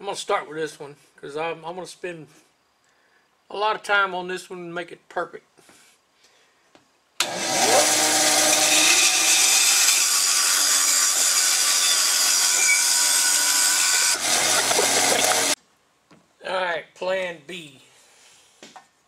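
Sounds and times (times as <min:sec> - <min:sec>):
bandsaw blade cutting wood: 0:07.2 - 0:15.6
bandsaw motor whining: 0:07.2 - 0:15.6.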